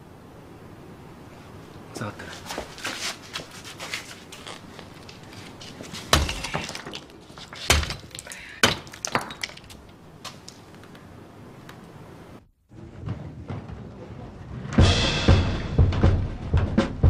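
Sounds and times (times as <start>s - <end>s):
blocks cracking and crumbling: 3.9s - 11.1s
heavy blows on concrete blocks: 6.0s - 9.8s.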